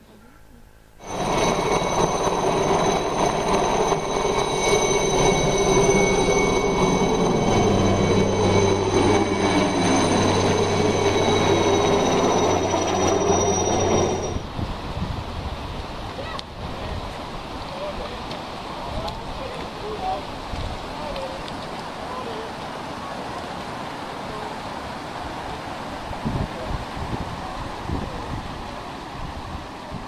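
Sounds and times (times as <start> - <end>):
high turbine whine: 0.9 - 14.9
heavy rotor noise: 1.0 - 14.5
helicopter flying: 1.0 - 14.5.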